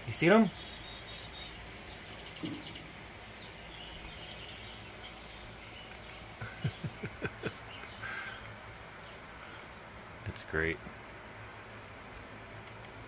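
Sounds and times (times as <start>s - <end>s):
songbird chirps through tv speakers: 0.0s - 6.9s
steady hiss: 0.0s - 13.0s.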